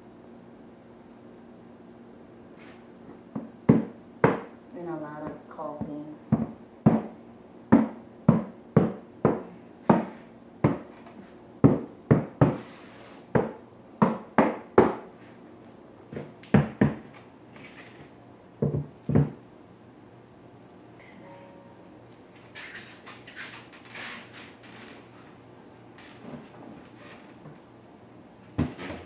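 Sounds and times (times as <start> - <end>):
mallet knocking on vinyl planks: 3.3 - 4.5, 5.2 - 10.9, 11.6 - 12.6, 13.3 - 15.0, 16.2 - 17.0, 18.6 - 19.4.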